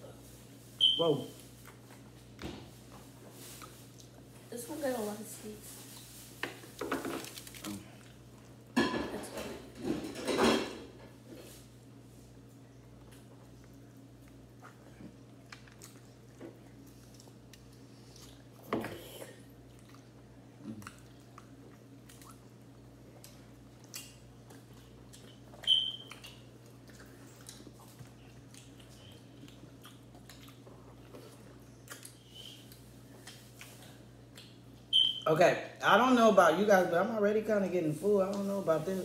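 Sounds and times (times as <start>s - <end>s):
people chewing meat: 12.8s - 34.9s.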